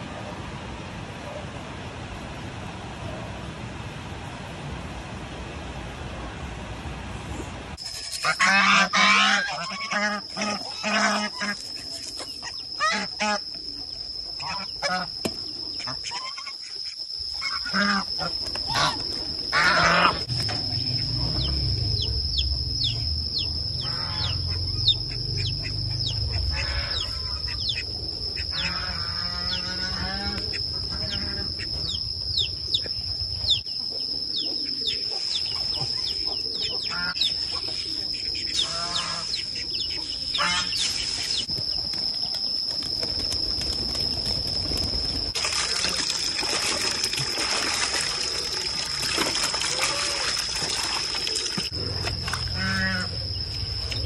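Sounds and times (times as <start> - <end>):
ducks quacking: 8.2 - 11.6, 17.5 - 20.2, 23.8 - 27.8, 28.4 - 31.7, 36.6 - 37.2, 38.4 - 39.4, 40.4 - 40.8, 52.5 - 53.2
steady high whine: 17.1 - 45.4, 51.6 - 54.0.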